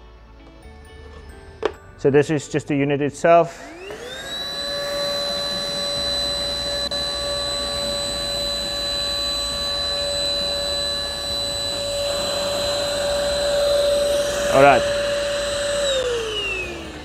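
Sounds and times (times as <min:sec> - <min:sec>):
handheld vacuum cleaner whine: 0:03.5 - 0:17.0.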